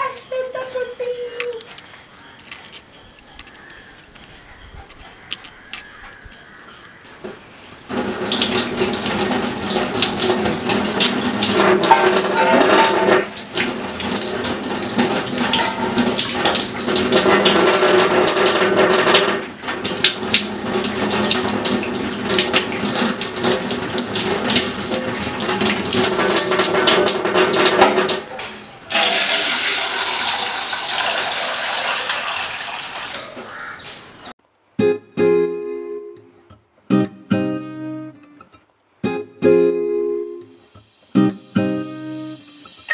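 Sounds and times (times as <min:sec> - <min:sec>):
water running from a tap: 0:07.9 - 0:33.4, 0:41.5 - 0:42.9
water splashing into steel sink: 0:07.9 - 0:33.5.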